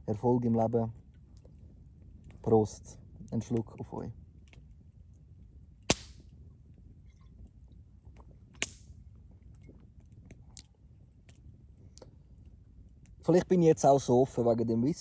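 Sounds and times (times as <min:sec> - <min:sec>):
campfire crackling: 0:00.0 - 0:15.0
sharp fire pops: 0:05.8 - 0:06.4, 0:08.1 - 0:09.0.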